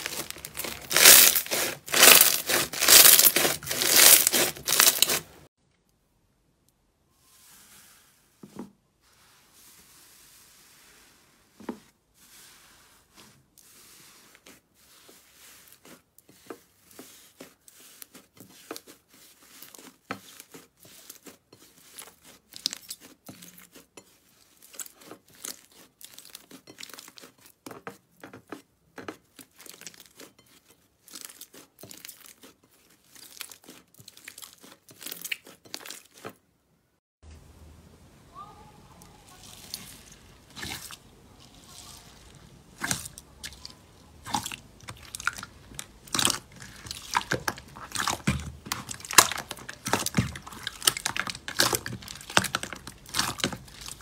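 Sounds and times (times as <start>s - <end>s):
slime crackling and popping: 0.0s - 5.4s, 44.2s - 54.0s.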